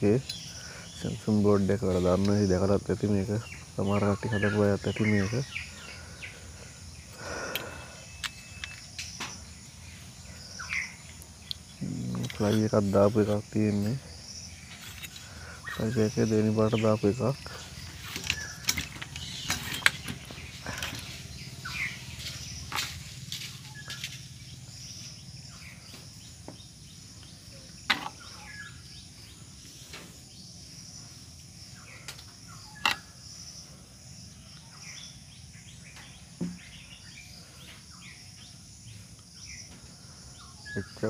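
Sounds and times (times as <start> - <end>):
insects chirring: 0.0 - 41.0
clicks and knocks from handling: 18.0 - 21.1.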